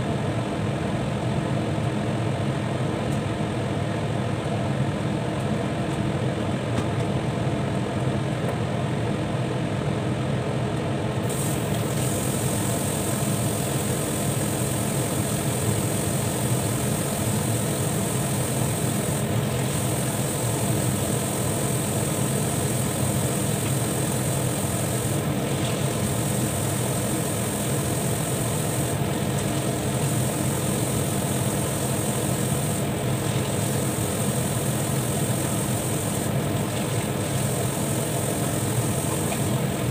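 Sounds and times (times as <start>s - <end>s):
high hiss: 11.3s - 39.9s.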